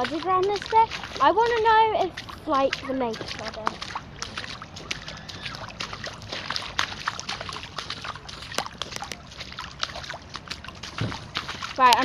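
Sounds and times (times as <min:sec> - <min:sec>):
boots wading through sloshing water: 0:00.0 - 0:12.0
water dripping: 0:00.0 - 0:12.0.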